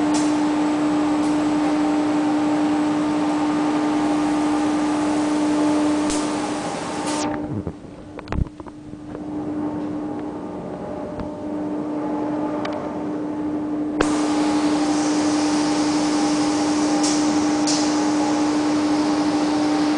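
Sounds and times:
machine hum: 0.0s - 19.9s
machine hissing: 14.0s - 19.9s.

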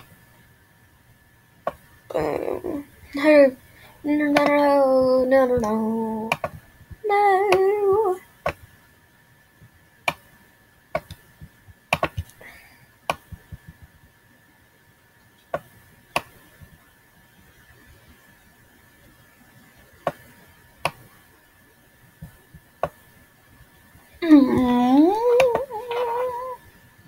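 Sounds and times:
person humming: 2.1s - 8.2s, 24.2s - 26.6s
computer clicks: 11.9s - 12.3s.

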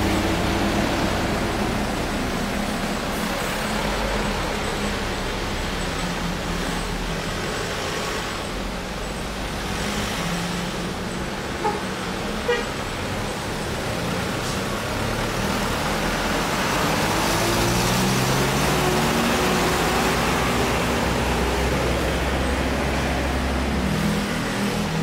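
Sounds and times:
truck and car engines labouring: 0.0s - 25.0s
car horn toots: 11.6s - 12.8s.

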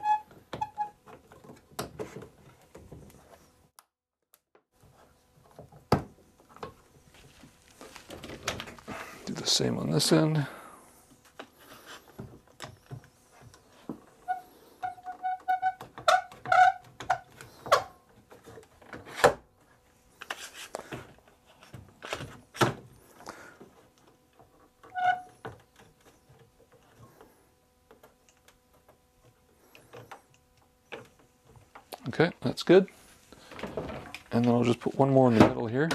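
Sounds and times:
clamp squeaking: 0.0s - 1.0s, 14.2s - 17.3s, 24.9s - 25.4s.

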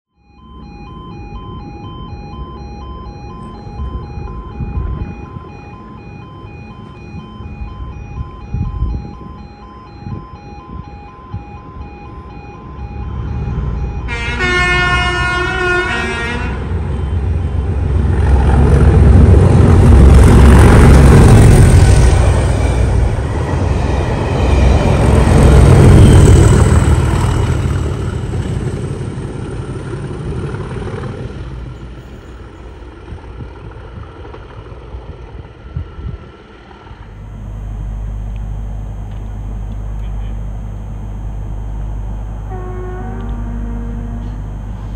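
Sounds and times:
train passing at speed: 13.0s - 40.0s, 40.6s - 44.9s
diesel locomotive horn: 13.8s - 27.5s, 37.2s - 44.9s.

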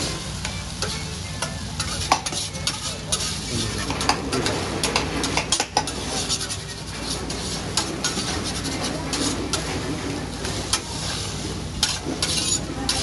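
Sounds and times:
food sizzling on griddle: 0.0s - 13.0s
metal spatula clacking on steel: 0.4s - 9.7s, 11.8s - 13.0s.

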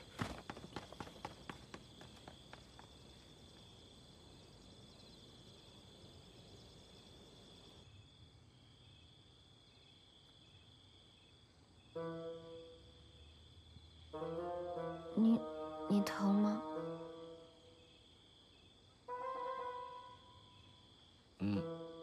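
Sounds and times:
quick footsteps: 0.0s - 3.1s
crickets chirring: 0.0s - 22.0s.

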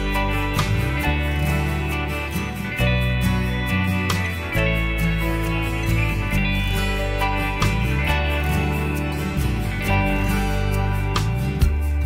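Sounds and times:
country guitar music: 0.0s - 12.0s.

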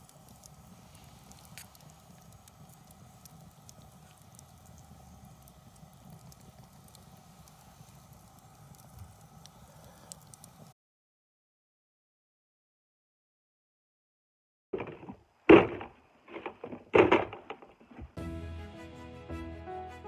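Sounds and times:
campfire crackling and popping: 0.0s - 10.7s, 14.8s - 18.2s.

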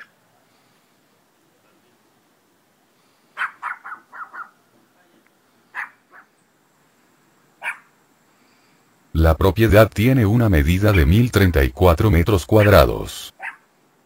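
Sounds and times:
animal short sharp calls: 3.4s - 4.6s, 7.6s - 7.9s.

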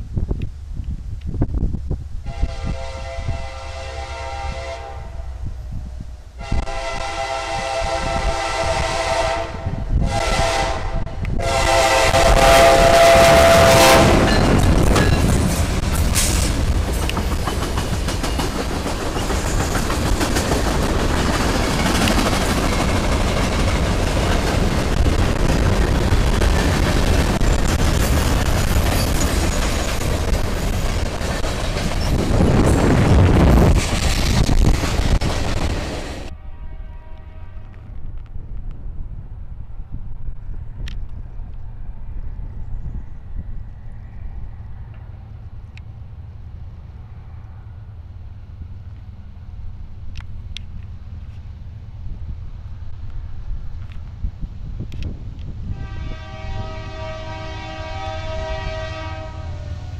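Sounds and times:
low rumble of moving train: 0.0s - 59.9s
locomotive air horn blasts: 2.2s - 5.5s, 6.4s - 14.6s, 36.3s - 37.9s, 55.7s - 59.9s
train wheels rolling on rails: 9.6s - 36.4s.

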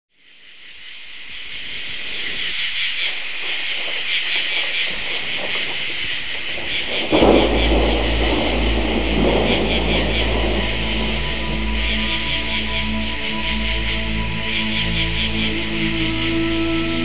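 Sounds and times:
heavy rain hissing: 0.9s - 17.0s
thunder rumbling: 3.2s - 17.0s
low sustained music tones: 6.9s - 17.0s.

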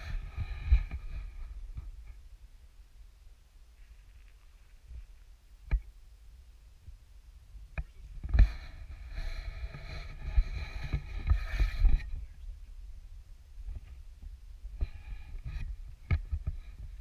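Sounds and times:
rustling: 3.7s - 5.4s.

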